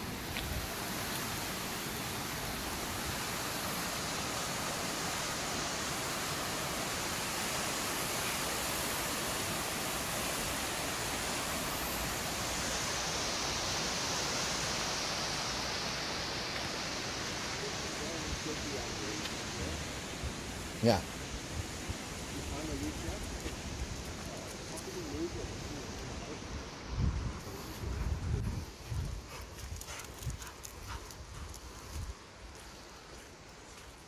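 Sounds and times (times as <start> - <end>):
river rushing over rapids: 0.0 - 23.5.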